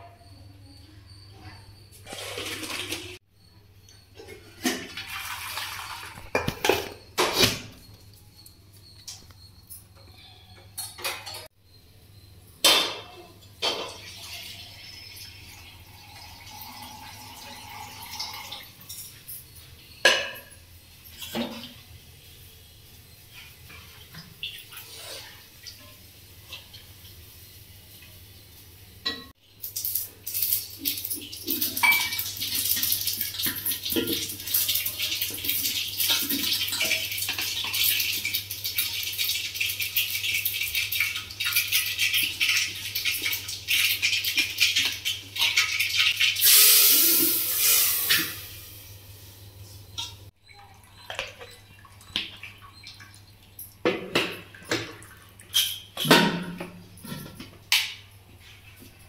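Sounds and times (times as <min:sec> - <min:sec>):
water pouring in metal pots: 0:02.0 - 0:03.2, 0:04.2 - 0:06.8, 0:13.7 - 0:19.1, 0:29.6 - 0:48.8
metal pots knocking and clinking: 0:04.0 - 0:07.6, 0:10.6 - 0:11.5, 0:12.6 - 0:14.1, 0:20.0 - 0:21.8, 0:30.7 - 0:38.2, 0:53.8 - 0:58.1.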